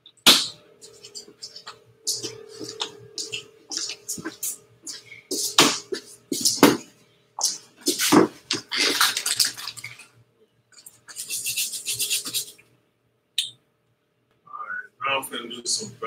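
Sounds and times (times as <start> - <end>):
scrubbing rustling of objects: 7.4 - 10.1.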